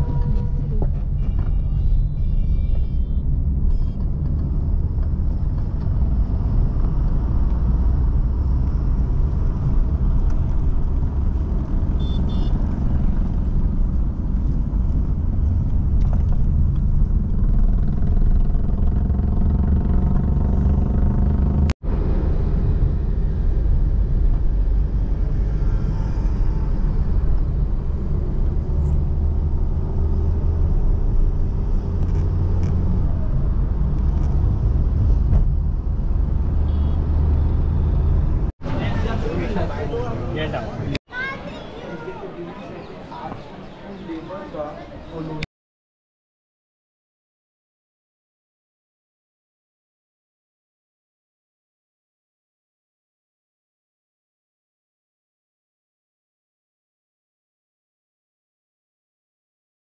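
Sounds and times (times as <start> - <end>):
car road and engine rumble: 0.0 - 41.3.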